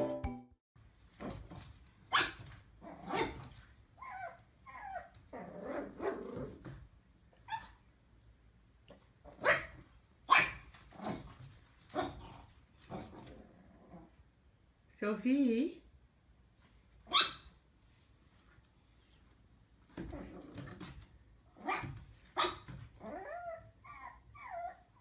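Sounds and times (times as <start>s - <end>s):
puppy barking: 2.1s - 2.4s, 9.4s - 10.7s, 17.1s - 17.5s, 21.6s - 22.8s
puppy whiny yelps: 4.0s - 5.2s, 10.3s - 10.6s, 17.0s - 17.5s, 21.6s - 25.0s.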